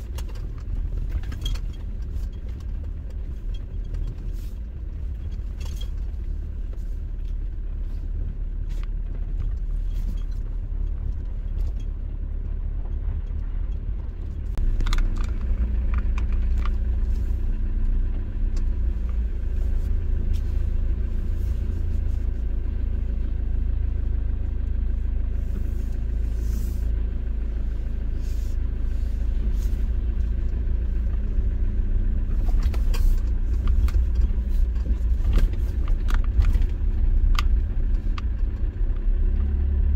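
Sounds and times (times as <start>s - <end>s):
tyre and engine rumble: 0.0s - 39.9s
small clicks and knocks: 8.8s - 17.1s, 32.4s - 39.5s.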